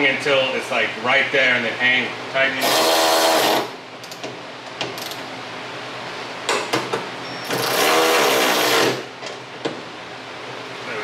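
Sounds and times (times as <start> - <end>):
electric ratchet whirring: 2.6 - 3.8, 7.5 - 9.1.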